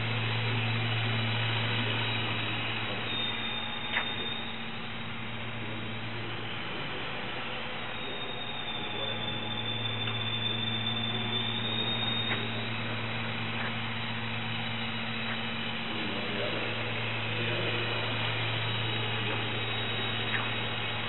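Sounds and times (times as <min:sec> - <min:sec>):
electric motor and propeller humming: 0:00.0 - 0:21.0.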